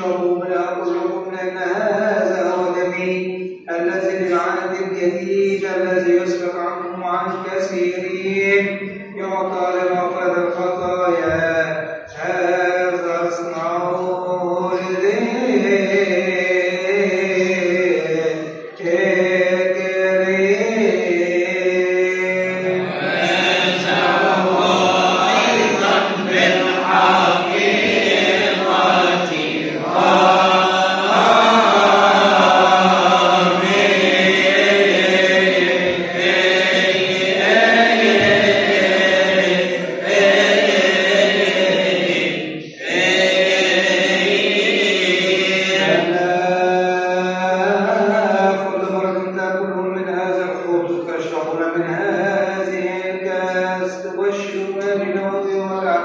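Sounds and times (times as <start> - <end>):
men chanting a hymn: 0.0 - 56.0.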